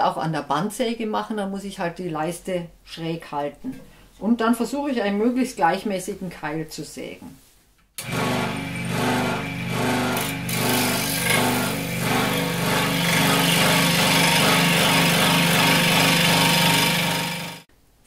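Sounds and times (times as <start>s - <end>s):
scroll saw cutting wood: 8.0s - 17.7s.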